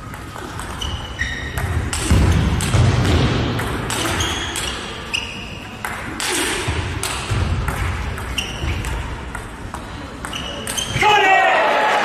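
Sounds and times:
shoes squeaking on floor: 0.4s - 2.0s, 4.0s - 5.8s, 8.2s - 9.1s, 10.3s - 11.0s.

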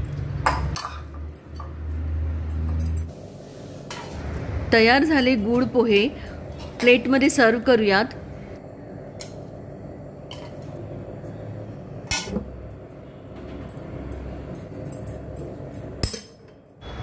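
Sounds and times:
low hum: 2.8s - 17.0s
spoon scraping a steel bowl: 3.9s - 4.2s.

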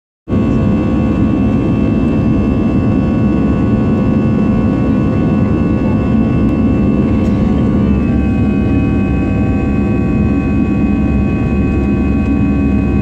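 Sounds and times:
jet engine rumble in cabin: 0.3s - 13.0s
thin engine whine: 0.3s - 13.0s.

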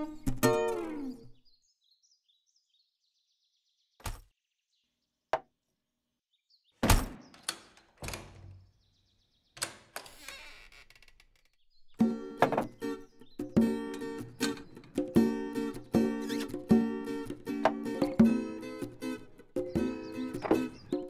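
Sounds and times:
case thunking on wooden table: 12.4s - 12.8s.

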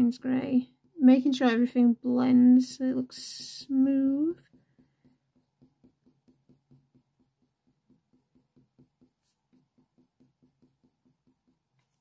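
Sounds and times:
coloured pencil scratching paper: 0.0s - 12.0s.

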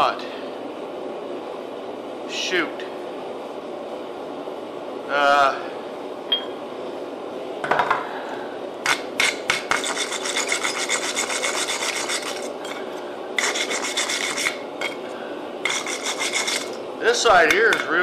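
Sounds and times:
wire brush scrubbing metal: 8.9s - 15.0s, 15.6s - 16.8s.

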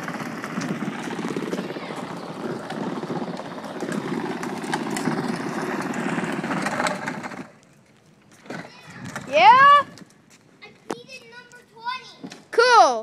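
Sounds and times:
toy truck wheels and motor rumbling: 0.0s - 10.1s.

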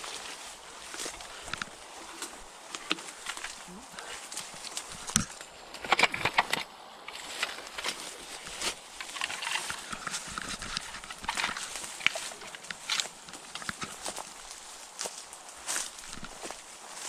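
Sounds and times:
leaves rustling: 0.0s - 17.0s
twigs and branches snapping: 0.0s - 17.0s.

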